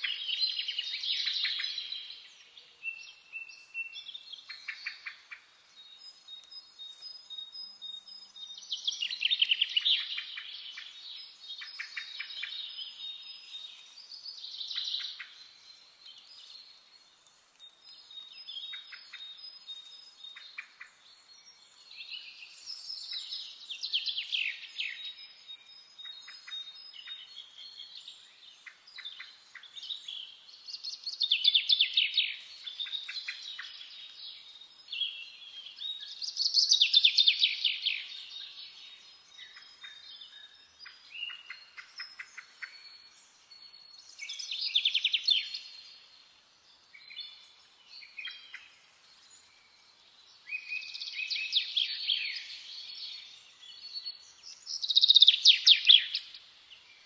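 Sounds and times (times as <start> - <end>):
soft bird chirps: 0.0 - 57.0
songbird trilling: 2.8 - 16.6, 34.9 - 38.6, 39.2 - 43.2, 44.0 - 45.9, 50.5 - 56.4.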